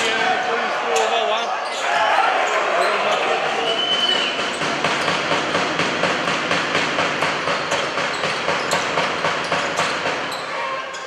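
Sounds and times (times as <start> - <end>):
crowd noise: 0.0 - 11.0
sharp knocks: 4.2 - 10.3.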